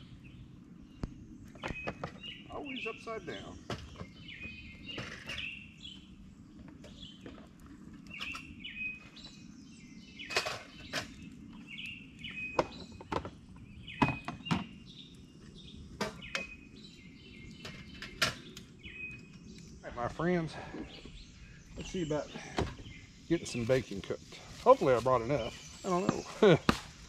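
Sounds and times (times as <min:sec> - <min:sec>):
birds chirping: 0:00.0 - 0:27.0.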